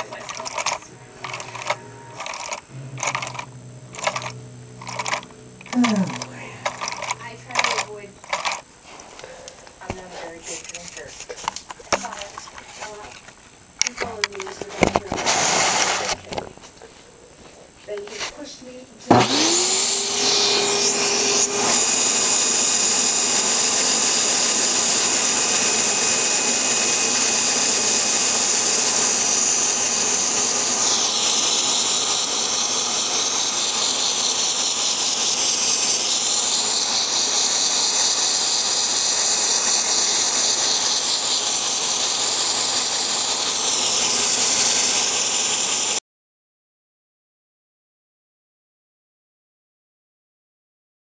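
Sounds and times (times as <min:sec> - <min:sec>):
toy engine hissing and whirring: 0:00.0 - 0:09.6, 0:14.4 - 0:16.2, 0:18.0 - 0:46.0
faint whine: 0:00.0 - 0:15.4.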